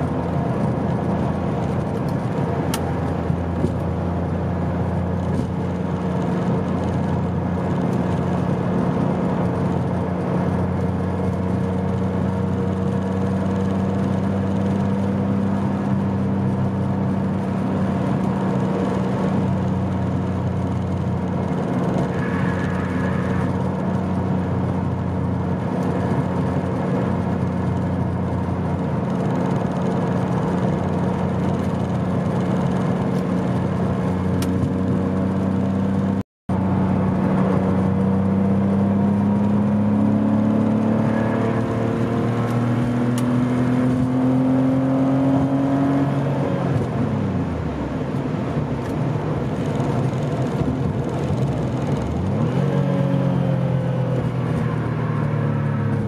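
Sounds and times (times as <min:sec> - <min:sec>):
car engine cruising: 0:00.0 - 0:56.0
road noise: 0:00.0 - 0:56.0.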